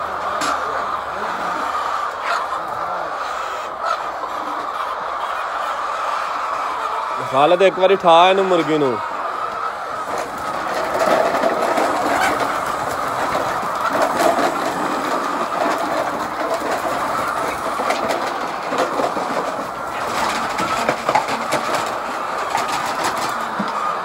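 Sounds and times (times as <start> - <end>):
hens clucking: 0.0 - 24.0.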